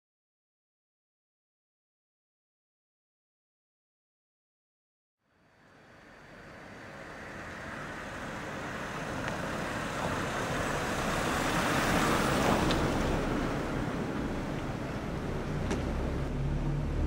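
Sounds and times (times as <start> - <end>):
road traffic noise: 5.2 - 17.0.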